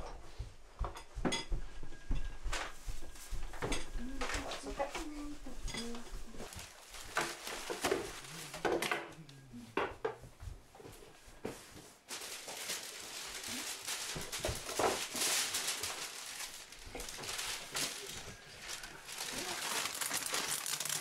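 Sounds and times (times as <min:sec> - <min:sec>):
wrapping paper rustling: 0:04.0 - 0:08.8, 0:11.5 - 0:21.0.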